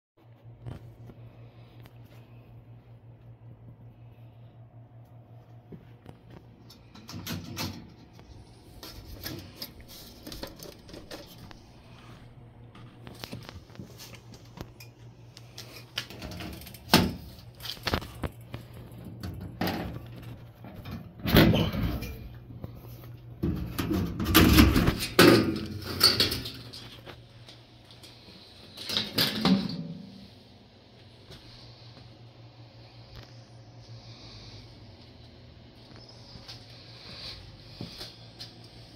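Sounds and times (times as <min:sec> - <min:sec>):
steady low hum: 0:00.2 - 0:38.9
metal panel rattling and clanking: 0:23.4 - 0:26.9.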